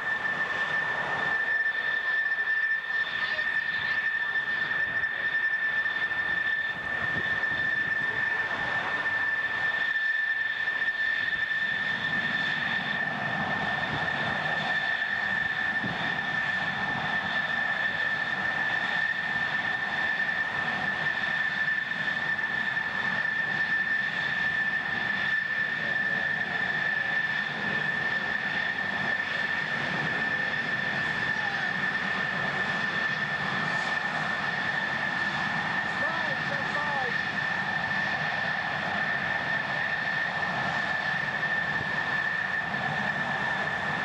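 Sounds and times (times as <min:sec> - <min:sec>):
jet engine rumble: 0:00.0 - 0:44.0
jet engine whine: 0:00.0 - 0:44.0.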